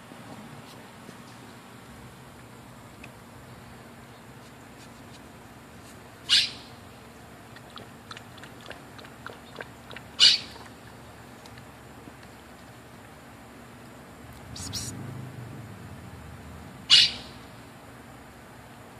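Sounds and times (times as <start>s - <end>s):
faint light ticks: 11.4s - 12.7s.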